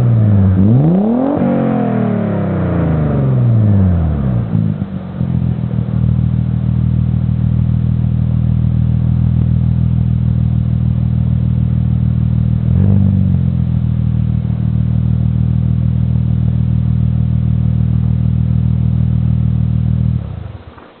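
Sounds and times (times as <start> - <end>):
engine rev blip: 0.0 - 6.1, 12.6 - 13.9
car engine idling: 0.0 - 21.0.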